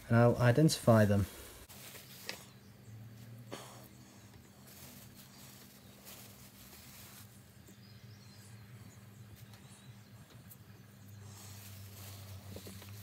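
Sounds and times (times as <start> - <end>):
plastic bag rustling: 1.6 - 2.6, 4.5 - 7.6, 11.2 - 13.0.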